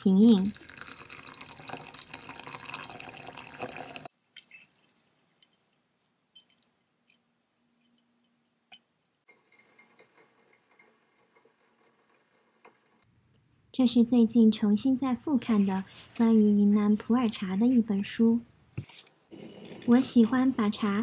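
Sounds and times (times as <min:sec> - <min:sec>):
water dripping: 0:00.1 - 0:09.3
water pouring into teapot: 0:00.3 - 0:08.1.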